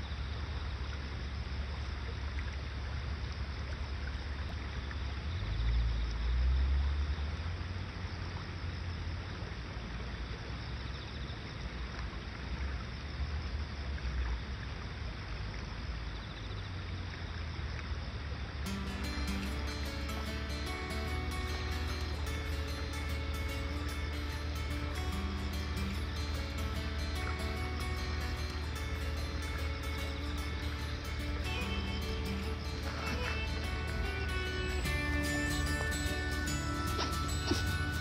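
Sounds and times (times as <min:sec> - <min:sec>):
river running over stones: 0:18.6 - 0:38.0.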